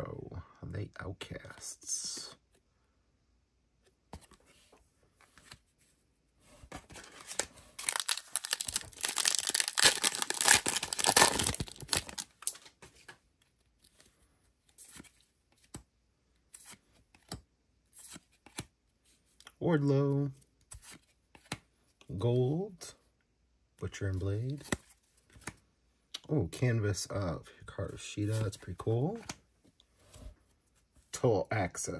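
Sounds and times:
cards being handled: 0:03.9 - 0:05.8, 0:06.7 - 0:19.6, 0:20.2 - 0:22.1, 0:24.4 - 0:25.6
foil pack tearing and crinkling: 0:07.8 - 0:12.3.

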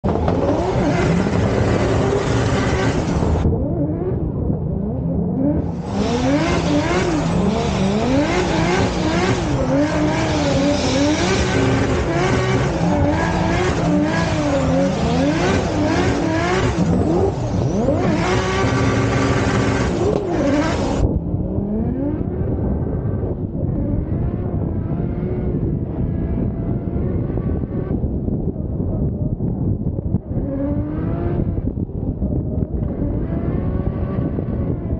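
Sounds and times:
car engine revving: 0:00.0 - 0:28.2, 0:30.1 - 0:34.9.

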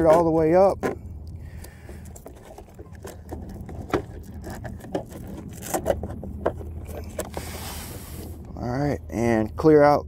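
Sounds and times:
steady low hum: 0:00.0 - 0:10.0
handling clicks and scrapes: 0:01.6 - 0:08.5.

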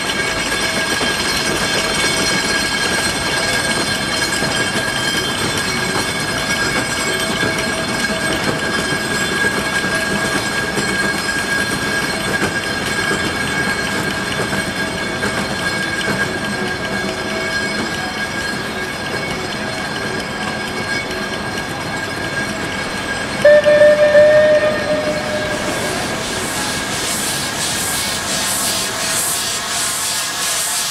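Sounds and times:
steam locomotive working: 0:00.0 - 0:30.9
steady high tone: 0:23.3 - 0:27.5
steam whistle blast: 0:23.4 - 0:26.9.

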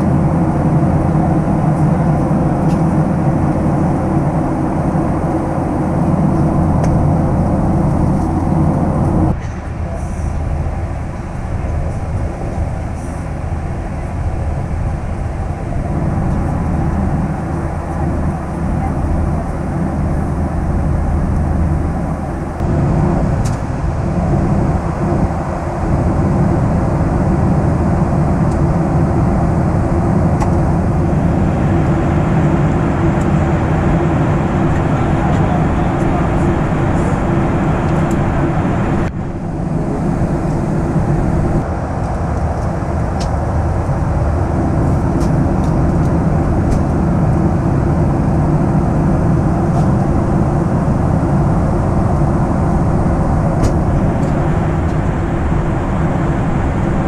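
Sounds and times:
airplane cabin drone: 0:00.0 - 0:57.0.

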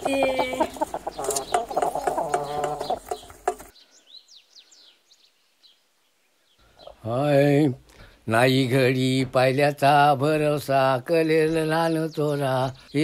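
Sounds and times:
chickens clucking: 0:00.0 - 0:03.8, 0:06.6 - 0:07.1
small birds chirping: 0:00.0 - 0:13.0.

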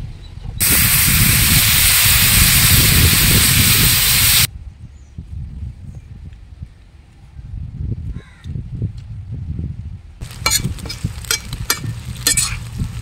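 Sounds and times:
water sizzling in hot pan: 0:00.6 - 0:04.5, 0:10.2 - 0:13.0.

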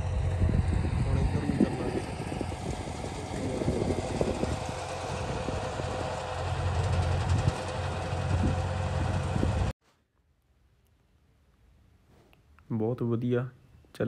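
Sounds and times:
tractor engine humming: 0:00.0 - 0:09.7.

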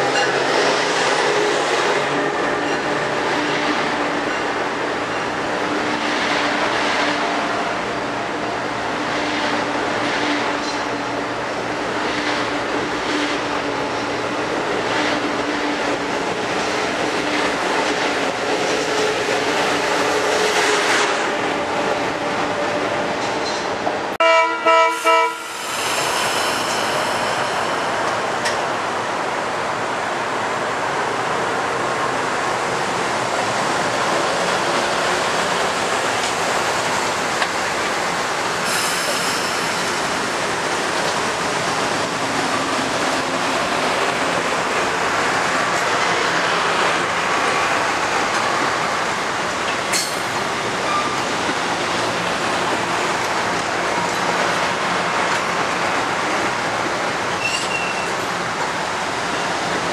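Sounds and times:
train rumble and hiss: 0:00.0 - 0:59.9
train horn blasts: 0:24.2 - 0:25.6
wheels clacking on rails: 0:33.4 - 0:59.9.

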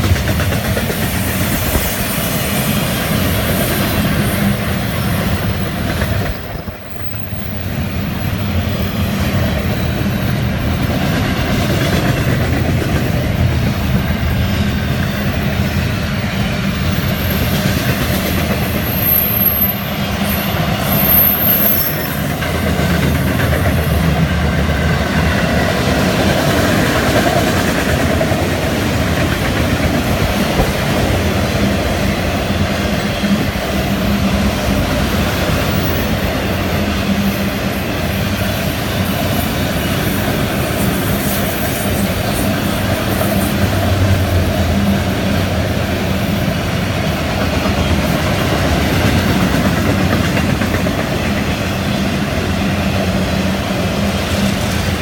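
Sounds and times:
freight train cars rolling past: 0:00.0 - 0:55.0
high wheel squeals: 0:18.6 - 0:22.4.

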